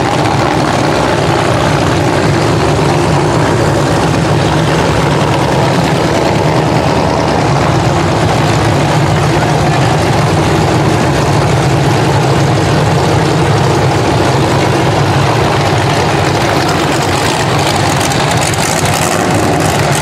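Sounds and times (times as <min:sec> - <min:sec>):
car engine idling: 0:00.0 - 0:20.0.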